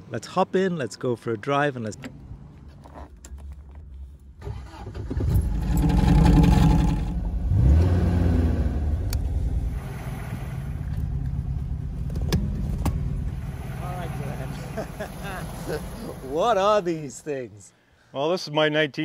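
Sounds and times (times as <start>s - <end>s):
starter motor cranking: 4.4s - 7.2s
car engine revving and idling: 4.6s - 16.6s.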